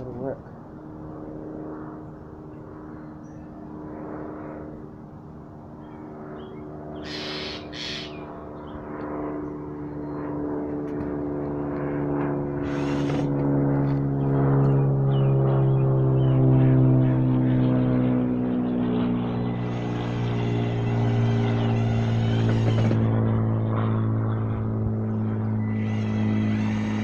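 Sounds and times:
steady low hum: 0.0s - 27.0s
cordless drill driving screws: 12.6s - 13.3s.

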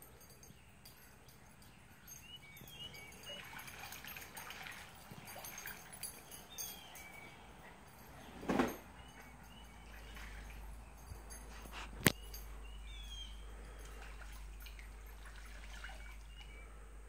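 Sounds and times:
faint bird chirps: 0.0s - 4.0s, 8.9s - 14.9s, 15.7s - 17.0s.

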